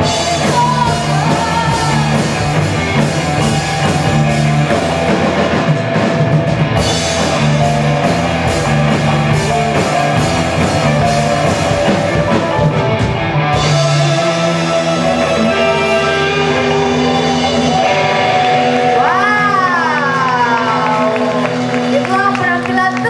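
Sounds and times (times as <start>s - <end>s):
bass guitar: 0.0s - 23.0s
drum kit rock beat: 0.0s - 23.0s
electric guitar: 0.0s - 23.0s
keyboard: 0.0s - 23.0s.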